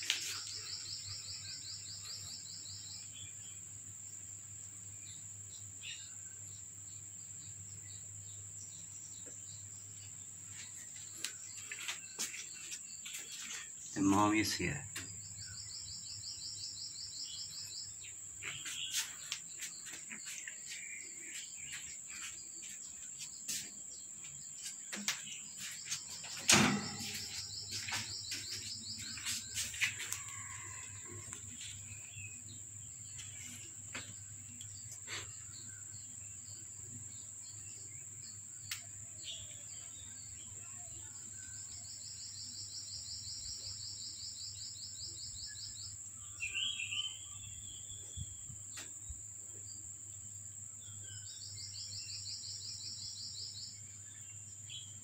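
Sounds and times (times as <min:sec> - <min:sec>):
bird chirps: 0:10.6 - 0:30.8, 0:39.2 - 0:48.9
sharp knock: 0:26.5 - 0:27.4.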